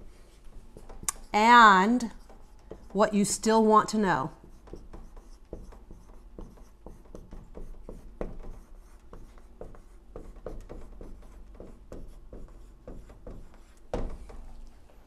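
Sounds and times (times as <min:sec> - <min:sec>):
marker squeaking on whiteboard: 0:04.4 - 0:14.5.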